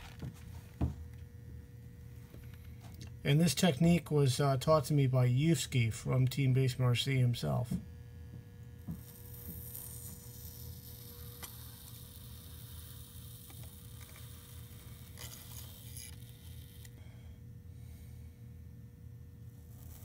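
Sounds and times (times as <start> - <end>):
low electrical hum: 0.0 - 20.0.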